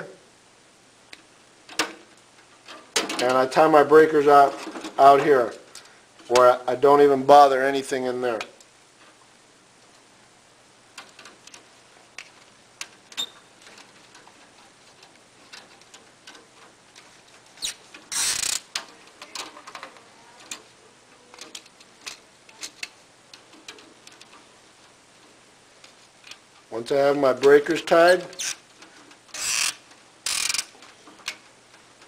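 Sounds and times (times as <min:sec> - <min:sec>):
rustle: 0:00.2 - 0:32.0
clicks and taps of wires: 0:10.9 - 0:20.7.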